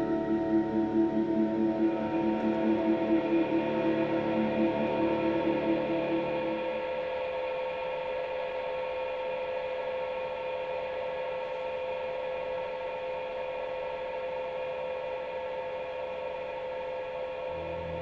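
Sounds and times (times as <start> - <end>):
ambient music drone: 0.0 - 18.0.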